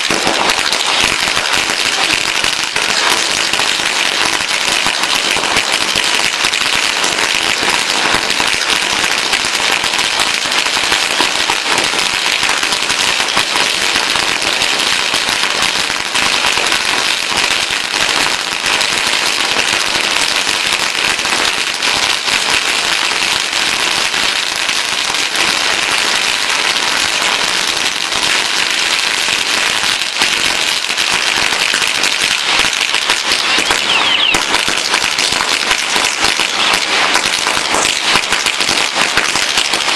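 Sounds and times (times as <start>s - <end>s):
firecrackers crackling: 0.0s - 39.9s.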